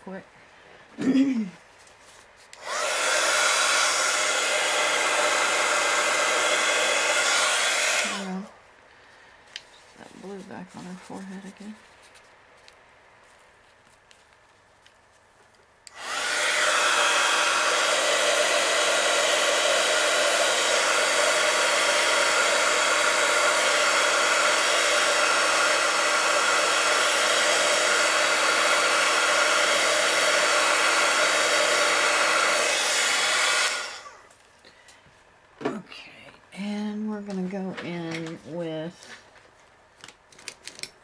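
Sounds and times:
heat gun blowing: 2.5 - 8.6, 15.8 - 34.3.

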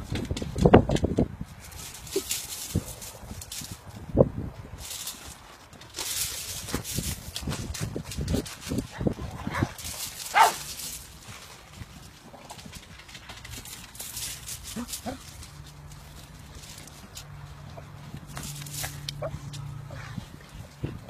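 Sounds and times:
dog barking: 10.3 - 10.6.

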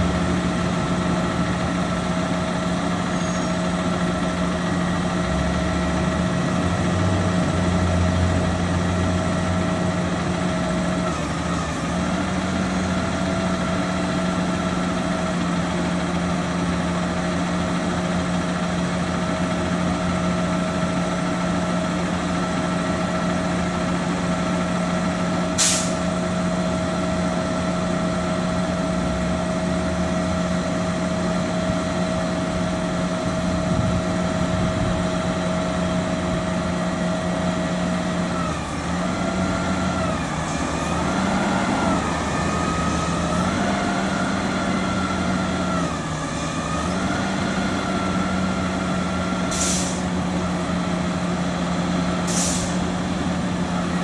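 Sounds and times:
diesel truck engine hum: 0.0 - 54.0
air hiss: 25.6 - 26.0, 49.5 - 50.0, 52.3 - 52.8.

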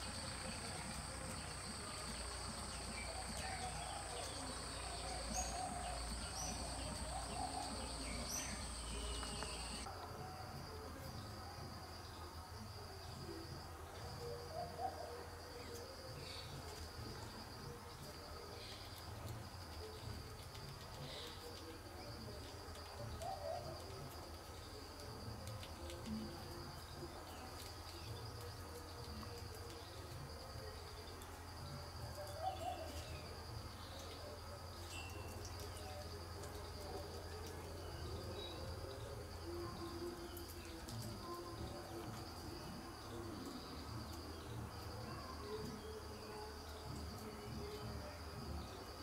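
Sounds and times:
high-pitched insect trill: 0.0 - 9.9, 32.2 - 46.3
small birds chirping: 0.0 - 9.9
insect drone: 0.0 - 11.0.

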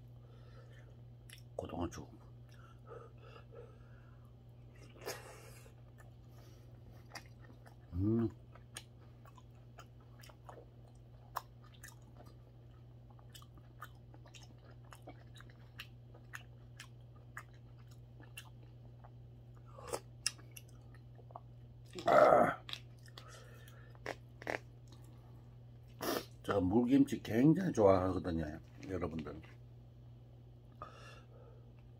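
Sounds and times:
person chewing: 0.6 - 1.6, 4.2 - 26.4.

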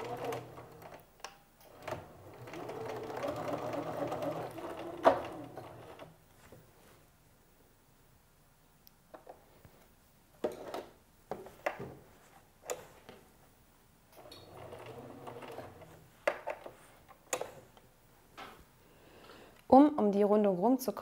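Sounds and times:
sewing machine stitching: 0.0 - 1.0, 1.7 - 6.2, 14.2 - 17.7.

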